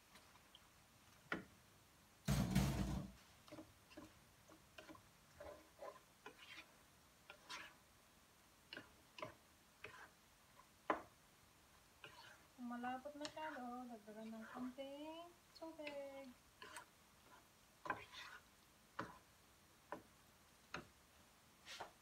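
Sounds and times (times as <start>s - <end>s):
wooden spatula scraping a pot: 2.6s - 7.8s, 8.7s - 11.1s, 12.0s - 14.9s, 15.6s - 19.3s, 21.6s - 22.0s.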